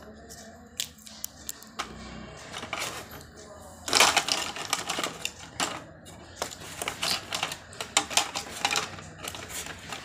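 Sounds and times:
small hard objects clattering: 0:03.9 - 0:10.0.

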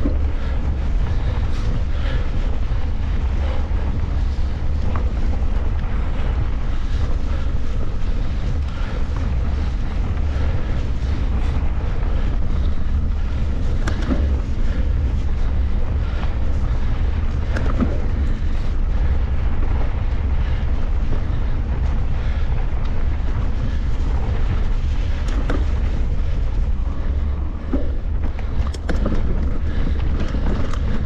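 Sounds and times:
small clicks and rattles: 0:00.0 - 0:31.0
wind buffeting microphone: 0:00.0 - 0:31.0.

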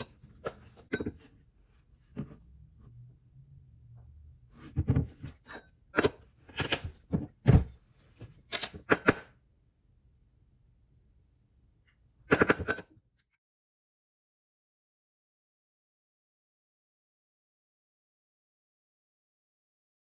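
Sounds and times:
spoon and bottles clinking: 0:00.0 - 0:01.3.

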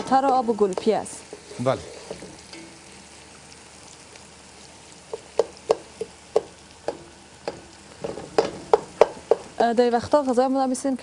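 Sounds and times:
onions frying: 0:00.0 - 0:11.0
spatula knocking against pot: 0:05.1 - 0:09.5.

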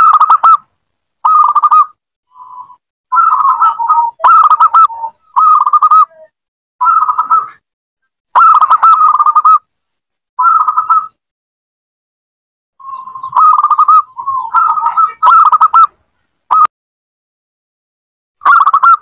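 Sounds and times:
dove cooing: 0:02.6 - 0:07.6, 0:12.8 - 0:15.9.

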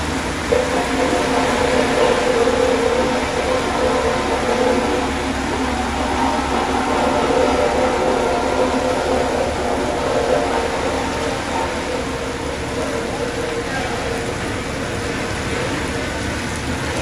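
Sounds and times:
diesel engine humming: 0:00.0 - 0:17.0
heavy rain hiss: 0:00.0 - 0:17.0.

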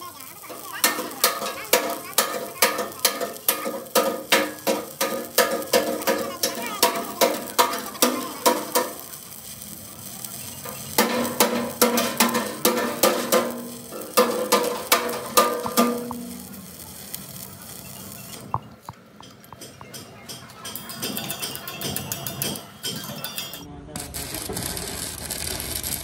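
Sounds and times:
hammer striking steel: 0:00.5 - 0:09.1, 0:10.6 - 0:16.6, 0:19.2 - 0:24.1.

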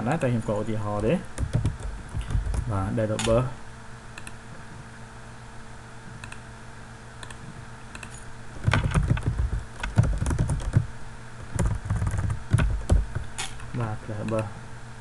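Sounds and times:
rapid keyboard typing: 0:01.4 - 0:02.8, 0:08.0 - 0:13.3
mouse clicks: 0:04.2 - 0:04.4, 0:06.2 - 0:06.4.

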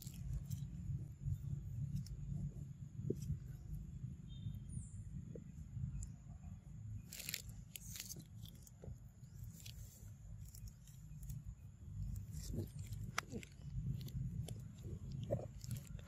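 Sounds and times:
dry leaves and twigs crackling: 0:00.0 - 0:03.8, 0:07.0 - 0:16.0
low steady rumble: 0:00.0 - 0:16.0.

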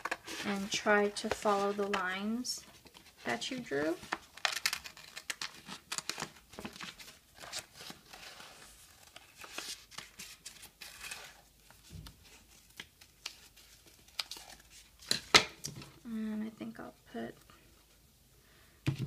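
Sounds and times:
paper rustling: 0:02.8 - 0:15.2.

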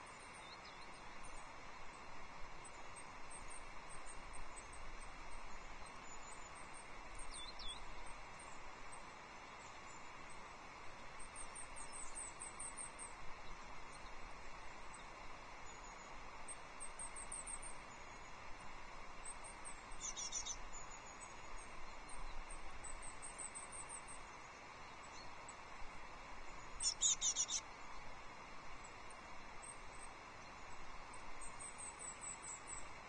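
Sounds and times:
songbirds calling: 0:00.0 - 0:10.4, 0:19.2 - 0:33.0
outdoor hiss: 0:00.0 - 0:33.0.

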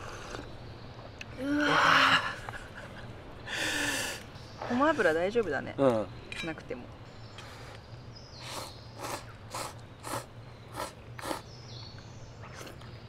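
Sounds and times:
people slurping noodles: 0:08.4 - 0:11.5.

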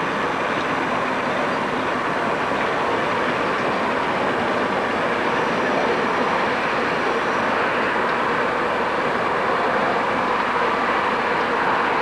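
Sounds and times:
diesel locomotive engines droning: 0:00.0 - 0:12.0.

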